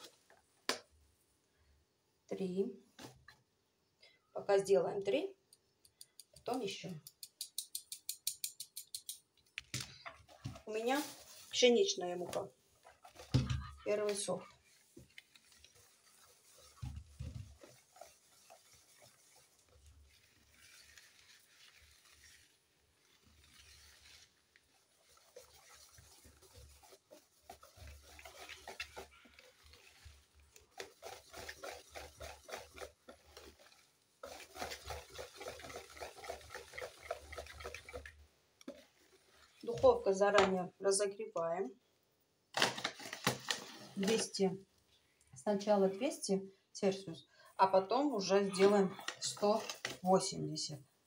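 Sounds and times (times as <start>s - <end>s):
whisk beating batter in a bowl: 14.9s - 22.6s, 23.4s - 38.8s.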